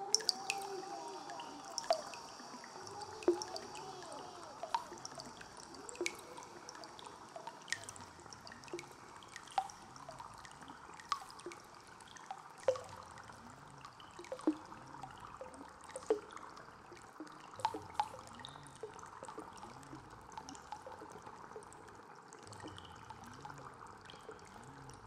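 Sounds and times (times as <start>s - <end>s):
water drops plopping: 0.0s - 9.8s, 11.0s - 13.1s, 14.0s - 16.4s, 17.2s - 19.7s
running water rush: 0.0s - 25.0s.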